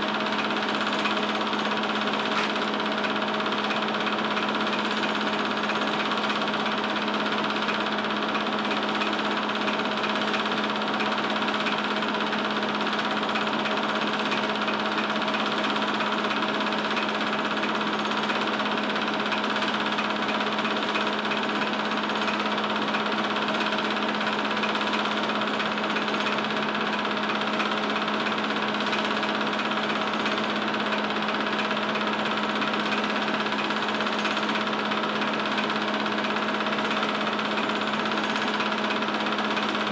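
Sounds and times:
film projector clattering: 0.0s - 39.9s
projector hum: 0.0s - 39.9s.

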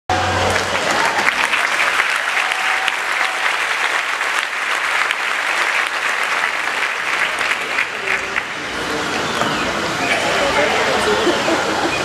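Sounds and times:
audience applauding: 0.1s - 12.0s.

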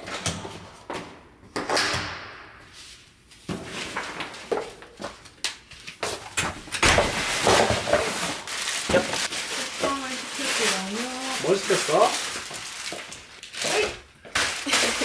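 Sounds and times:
packaging rustling: 6.9s - 15.0s.

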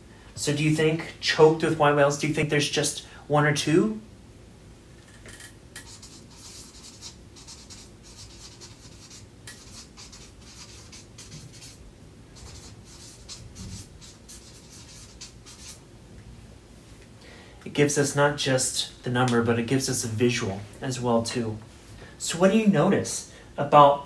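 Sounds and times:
pen scratching while handwriting: 5.8s - 11.8s, 12.4s - 15.8s.

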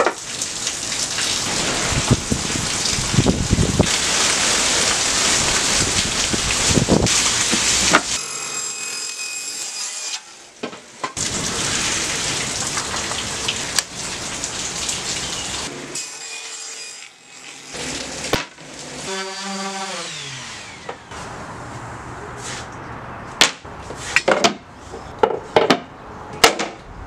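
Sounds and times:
table saw cutting: 3.9s - 5.8s, 7.1s - 10.4s, 15.7s - 21.3s
random orbital sander: 19.0s - 21.2s.

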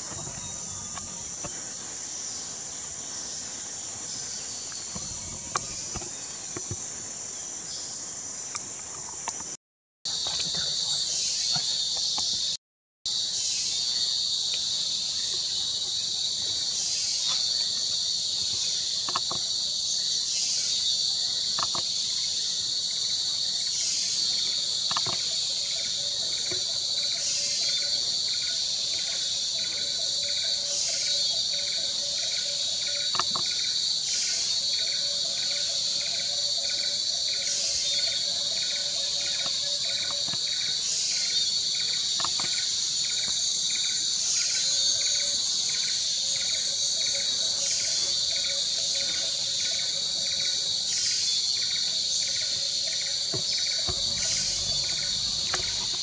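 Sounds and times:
fast pulsing insect call: 0.0s - 56.0s
faint low drone: 53.9s - 56.0s.

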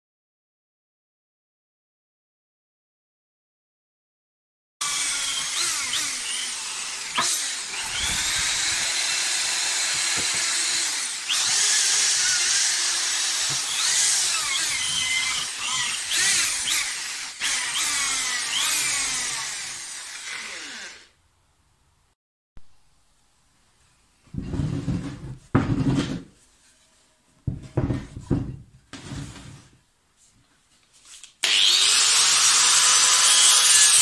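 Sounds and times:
electric drill grinding wood: 4.8s - 21.2s, 31.4s - 34.0s.

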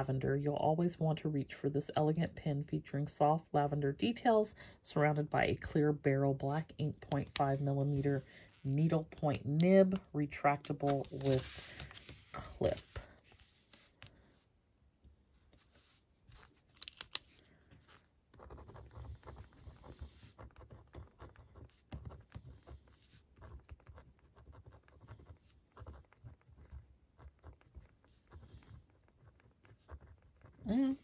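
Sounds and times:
pen scratching on paper: 17.8s - 31.0s.

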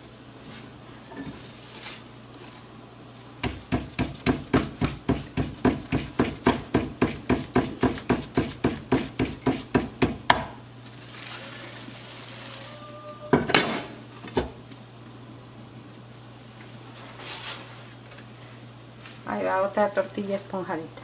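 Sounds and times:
hands slapping dough: 3.4s - 10.6s.

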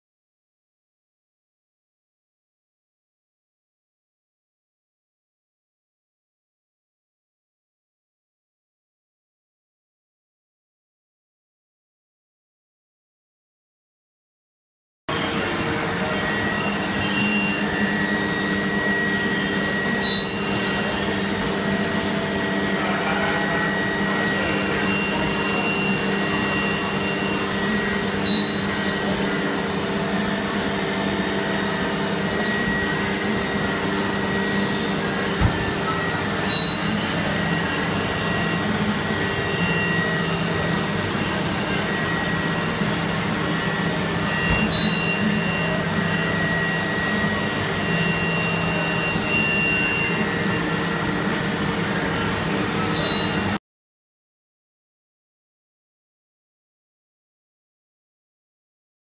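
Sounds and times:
lathe mechanical hum: 15.1s - 53.6s.

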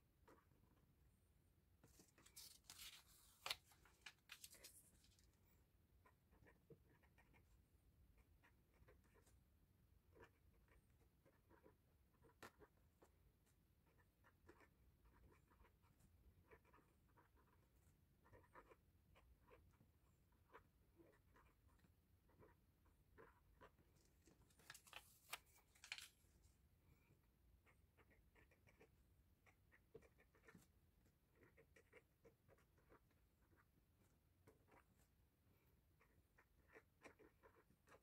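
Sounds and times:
plastic sleeves rustling: 1.9s - 5.3s, 24.2s - 26.3s.

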